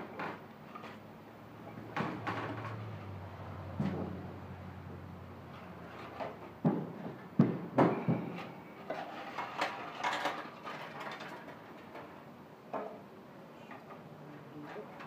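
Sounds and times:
sharp knocks and clunks: 1.8s - 4.4s, 5.9s - 8.6s.

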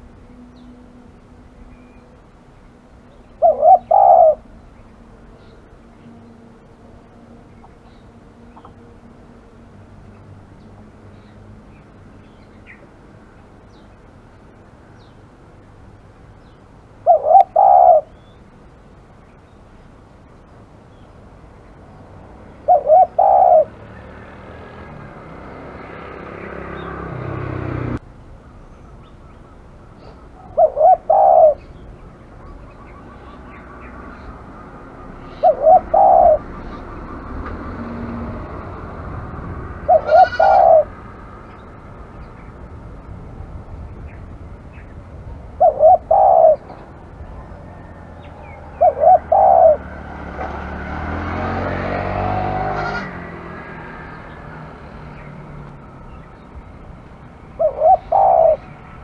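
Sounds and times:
dove cooing: 3.2s - 8.8s, 17.0s - 18.2s, 22.4s - 27.6s, 29.9s - 38.8s, 39.7s - 41.3s, 45.4s - 51.8s, 57.4s - 59.0s.

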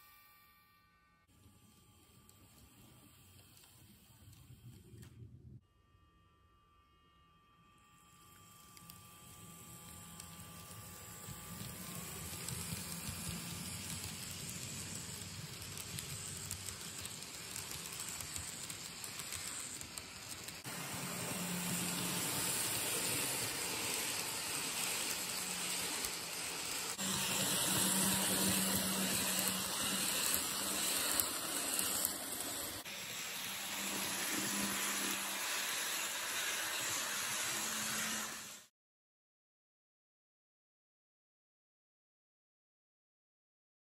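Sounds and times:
model train wheels rushing on rails: 1.4s - 5.1s, 8.0s - 38.7s.

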